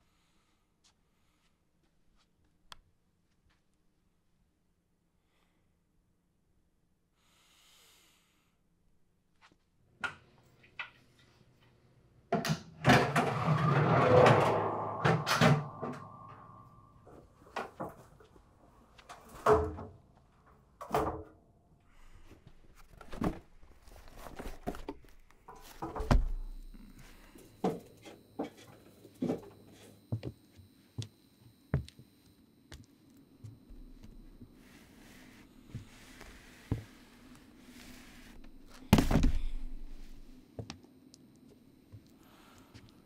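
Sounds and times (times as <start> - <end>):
wooden ladder creaking scrape: 12.9 - 16.7.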